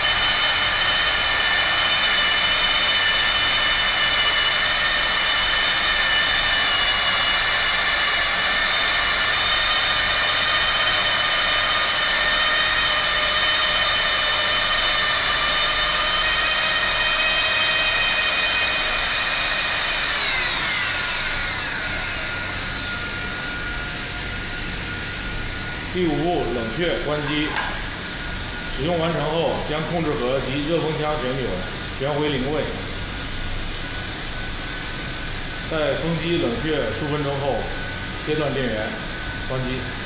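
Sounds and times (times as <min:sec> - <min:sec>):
hot-air gun blower whine: 0:00.0 - 0:40.0.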